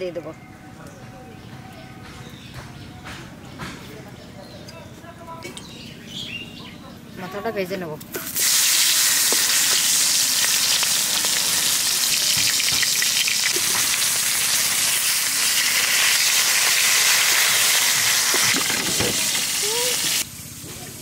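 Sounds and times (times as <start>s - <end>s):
oil popping: 8.2s - 20.2s
fish frying in hot oil: 8.3s - 20.6s.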